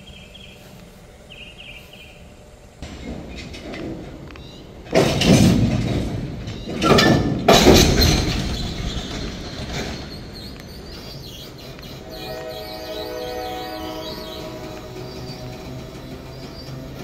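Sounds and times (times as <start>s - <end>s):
freight cars metallic jolts: 4.8s - 10.9s.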